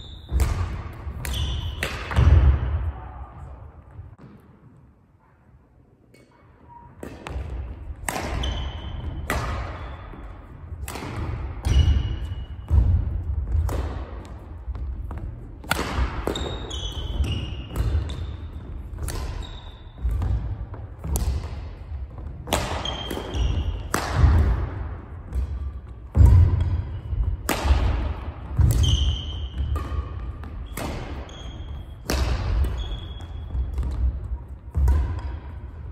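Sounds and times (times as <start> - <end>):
shoe squeaks: 0.0 - 0.5, 16.2 - 20.1, 22.8 - 23.9, 28.8 - 32.0, 32.6 - 33.8
racket striking shuttlecock: 0.3 - 2.7, 7.0 - 35.9.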